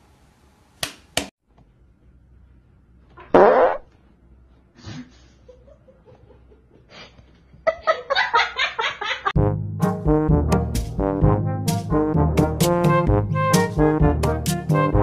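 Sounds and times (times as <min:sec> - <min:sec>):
loud fart: 0:03.2 - 0:03.9.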